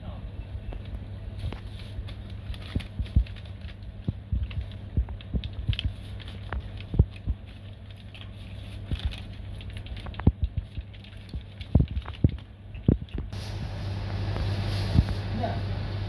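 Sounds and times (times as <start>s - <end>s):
steady low hum: 0.0s - 16.0s
plastic bag crinkling: 1.4s - 13.3s.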